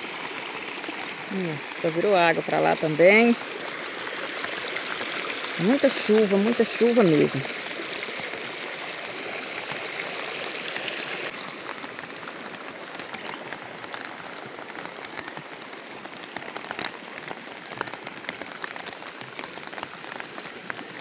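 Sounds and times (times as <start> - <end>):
raindrops ticking: 0.0 - 8.7, 11.3 - 21.0
heavy rain falling: 0.0 - 21.0.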